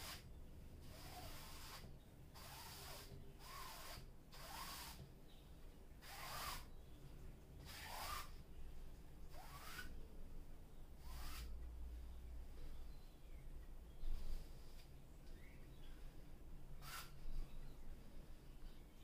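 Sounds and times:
brush swishing on canvas: 0:00.0 - 0:00.3, 0:11.0 - 0:11.5, 0:16.8 - 0:17.4.

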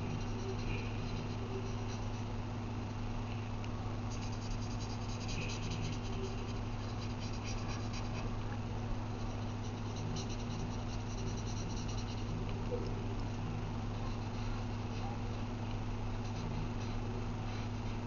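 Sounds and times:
marker scratching on paper: 0:00.0 - 0:02.3, 0:04.1 - 0:08.4, 0:09.2 - 0:12.9, 0:13.9 - 0:15.4, 0:16.1 - 0:18.0
low hum: 0:00.0 - 0:18.0.

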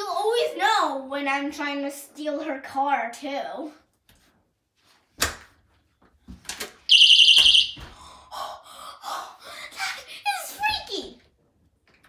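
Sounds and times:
high electronic beep: 0:06.9 - 0:07.8.

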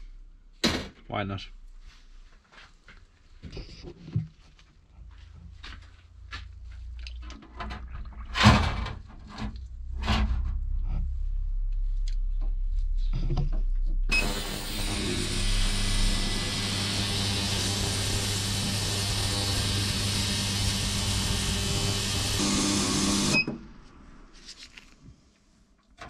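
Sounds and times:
ultrasonic cleaner hissing and humming: 0:14.1 - 0:23.6.

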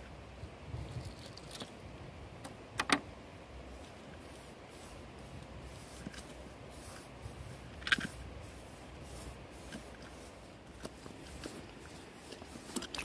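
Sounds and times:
hands kneading dough: 0:03.8 - 0:13.0.

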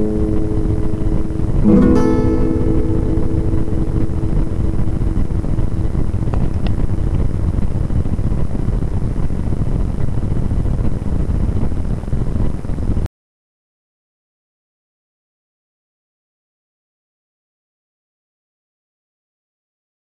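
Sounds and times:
acoustic guitar ringing notes: 0:00.0 - 0:07.4
microphone handling rumble: 0:00.0 - 0:13.0.

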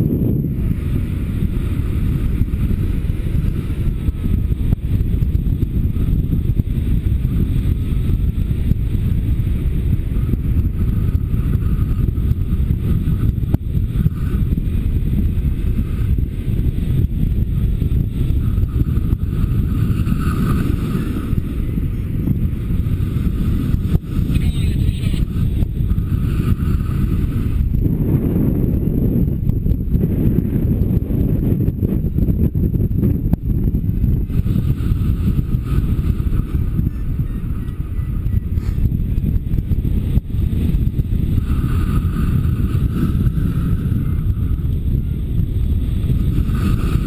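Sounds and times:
wind buffeting microphone: 0:00.0 - 0:47.0.

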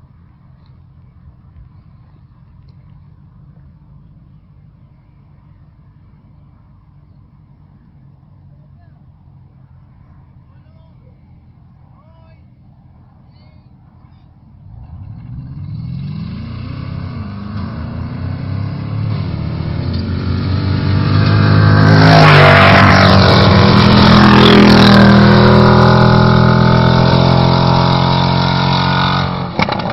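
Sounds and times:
buggy engines racing past: 0:14.6 - 0:29.9.

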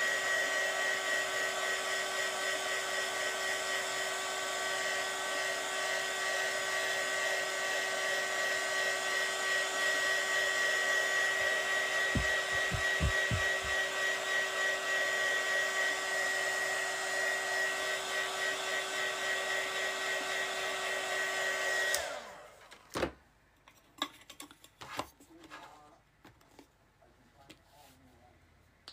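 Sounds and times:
heat gun blowing: 0:05.4 - 0:22.4
soft low thumps: 0:12.1 - 0:13.8
knock: 0:12.2 - 0:13.8.

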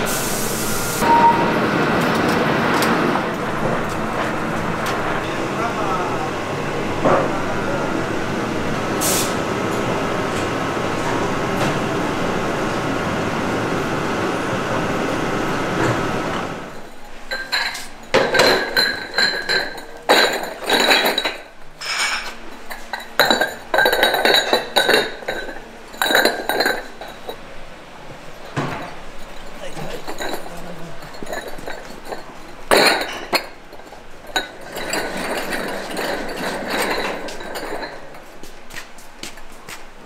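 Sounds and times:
pottery clinking together: 0:16.8 - 0:27.4, 0:28.5 - 0:38.3.

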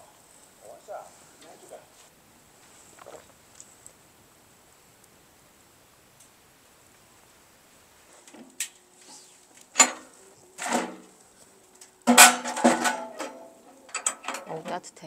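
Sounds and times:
stove door clanking: 0:09.8 - 0:11.0, 0:12.1 - 0:14.6
ringing metal clatter: 0:12.0 - 0:14.9.

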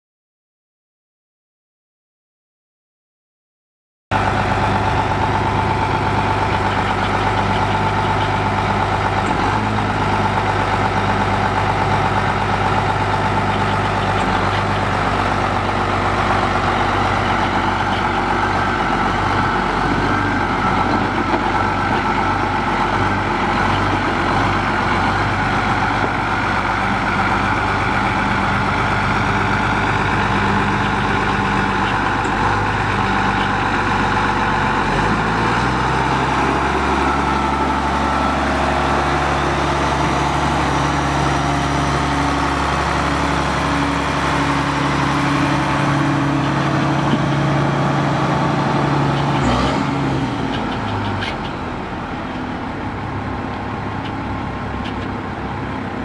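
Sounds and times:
tractor diesel engine idling: 0:04.1 - 0:56.0.

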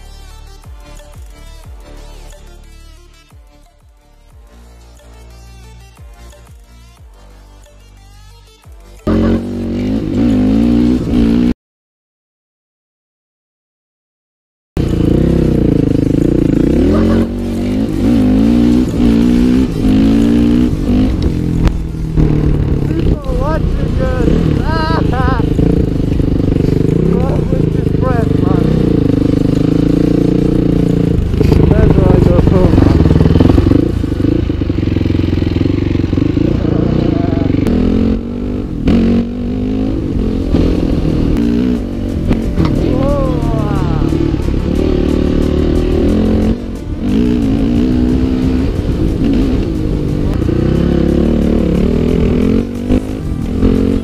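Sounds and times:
dirt bike engine revving: 0:08.7 - 0:11.6, 0:14.8 - 0:54.0.

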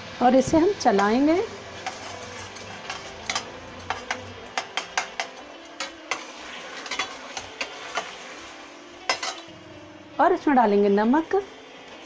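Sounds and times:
oil sizzling: 0:00.0 - 0:12.0
metal spatula scraping a pot: 0:01.8 - 0:08.5.

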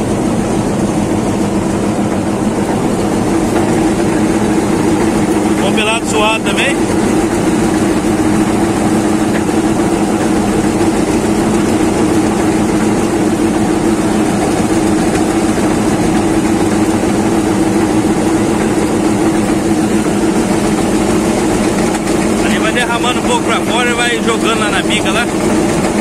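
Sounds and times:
truck engine and auger drone: 0:00.0 - 0:26.0.

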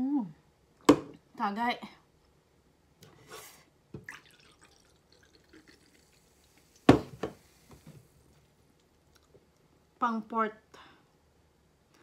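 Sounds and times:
faint hiss of liquid: 0:03.2 - 0:08.4
drink pouring into glass: 0:04.0 - 0:07.7
object knocked down on table: 0:06.9 - 0:07.4.

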